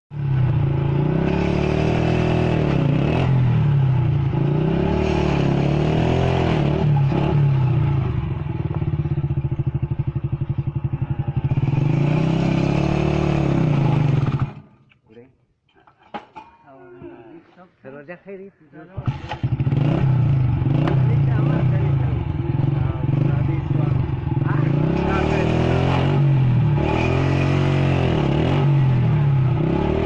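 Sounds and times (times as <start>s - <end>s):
motorcycle engine revving: 0.1s - 14.8s, 19.0s - 30.0s.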